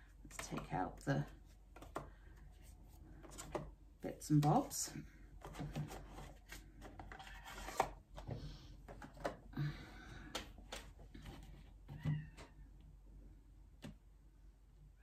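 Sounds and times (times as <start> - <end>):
cards clicking and tapping on table: 1.7 - 2.2.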